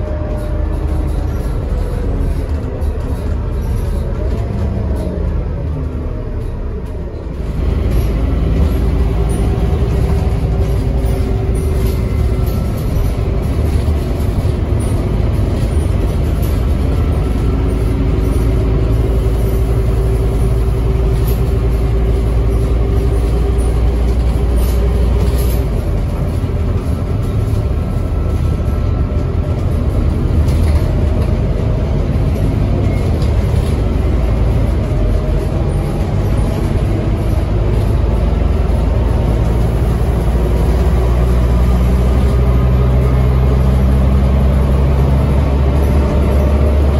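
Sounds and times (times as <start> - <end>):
bus engine droning: 0.0 - 46.9.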